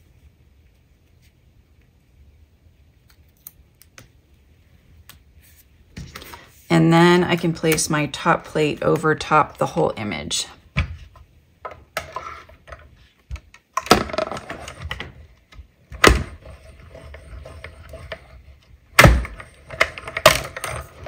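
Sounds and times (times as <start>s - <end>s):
sharp cracks and knocks: 19.0s - 20.7s.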